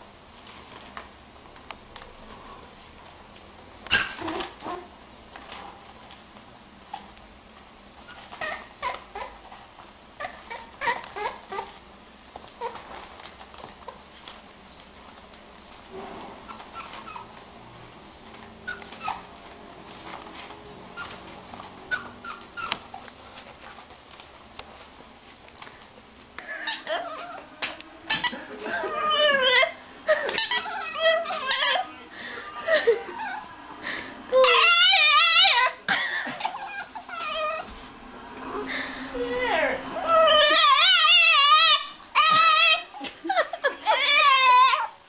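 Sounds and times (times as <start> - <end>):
puppies squeaking and whimpering: 3.9 - 4.9, 8.0 - 11.8, 12.5 - 14.0, 16.4 - 17.4, 18.3 - 19.6, 20.4 - 23.9, 26.4 - 27.5, 28.1 - 32.0, 32.8 - 33.6, 34.4 - 35.8, 36.4 - 37.7, 39.2 - 43.1, 43.8 - 45.0
dog howling: 30.4 - 32.0, 34.3 - 35.8, 36.6 - 37.7, 39.2 - 42.9, 43.8 - 45.0.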